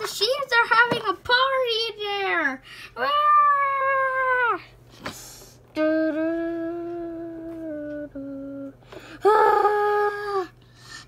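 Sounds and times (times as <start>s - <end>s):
child making drawn-out vocal sounds: 9.2s - 10.6s.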